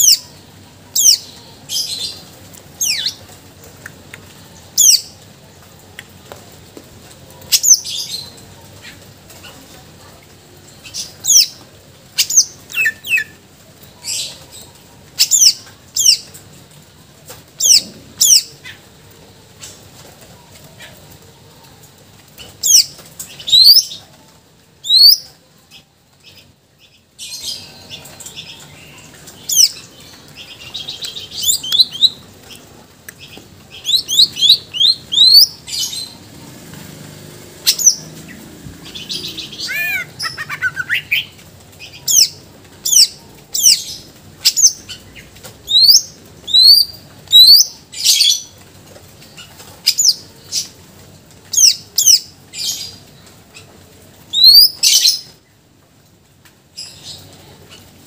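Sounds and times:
bird whistling song: 24.9s - 25.2s, 33.8s - 35.6s, 45.7s - 47.7s, 54.3s - 55.3s
bird scratchy chatter: 27.5s - 44.1s.

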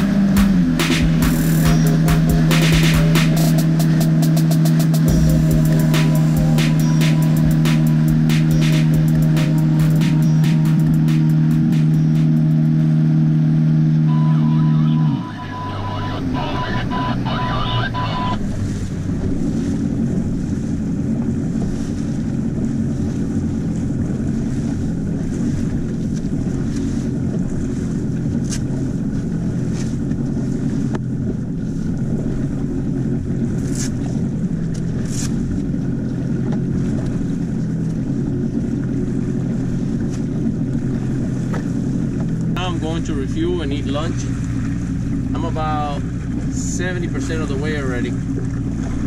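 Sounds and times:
boat engine running: 0.0s - 49.0s
hull through choppy water: 0.0s - 49.0s
wind buffeting microphone: 18.4s - 42.6s.

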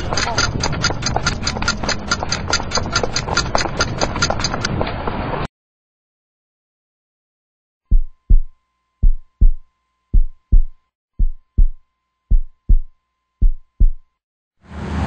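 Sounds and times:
heartbeat double thump: 7.9s - 14.0s.

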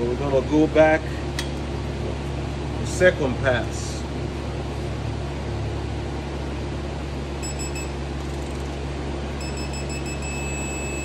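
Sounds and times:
fan hum: 0.0s - 11.0s
torque gauge beeping: 7.4s - 8.7s, 9.4s - 11.0s.

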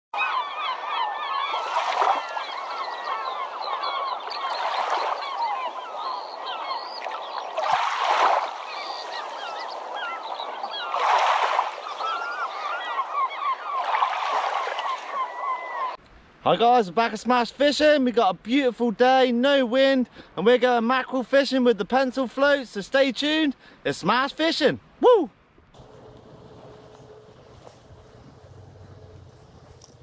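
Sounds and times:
birds squawking and chirping: 0.2s - 16.0s.

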